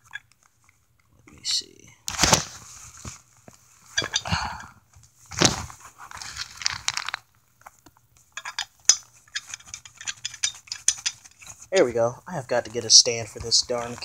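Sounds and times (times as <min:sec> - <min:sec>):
knife handling rustling and scraping: 0:05.4 - 0:12.0.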